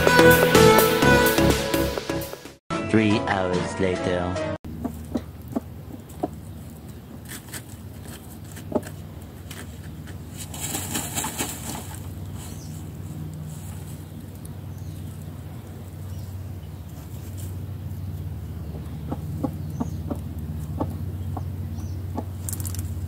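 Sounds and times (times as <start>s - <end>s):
hen feathers rustling: 4.7s - 18.5s
steady low hum: 4.7s - 23.0s.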